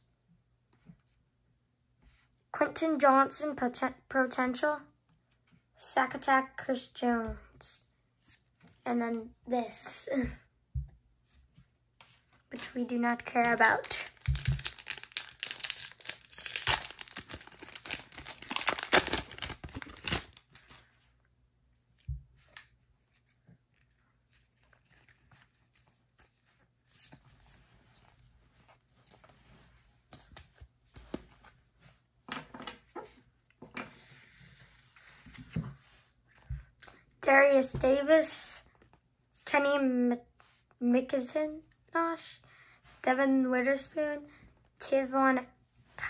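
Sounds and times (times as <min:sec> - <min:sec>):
trading cards rustling: 0:12.5 - 0:20.9
wrapper tearing and crinkling: 0:13.3 - 0:20.8.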